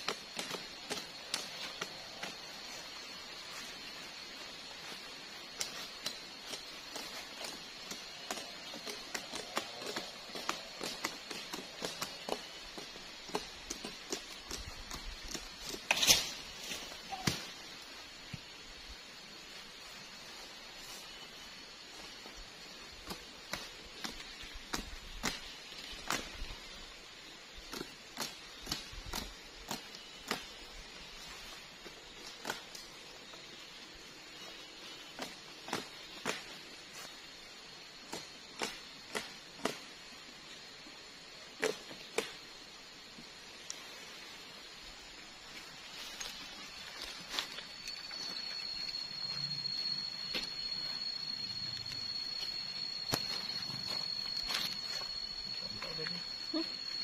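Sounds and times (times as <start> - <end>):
dry leaves crackling and snapping: 0.0 - 4.0, 4.8 - 17.5, 45.4 - 57.0.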